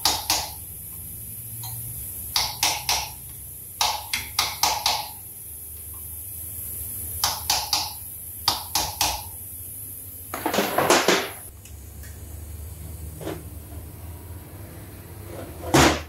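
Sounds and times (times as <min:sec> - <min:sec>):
hammer tapping metal punch: 0:00.0 - 0:00.6, 0:01.6 - 0:03.2, 0:03.8 - 0:05.2.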